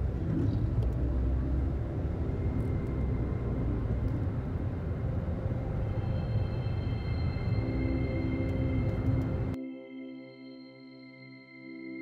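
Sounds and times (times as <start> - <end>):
car driving on road: 0.0 - 9.6.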